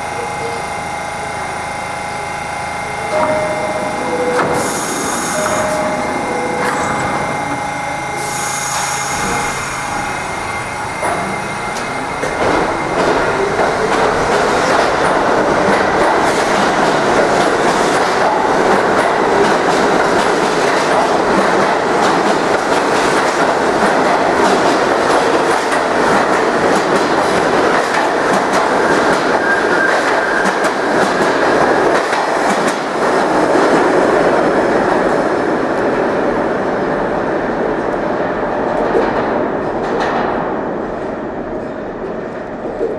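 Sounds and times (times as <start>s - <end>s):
subway train rumbling on rails: 0.0s - 42.9s
wheels clacking on rails: 2.8s - 36.0s.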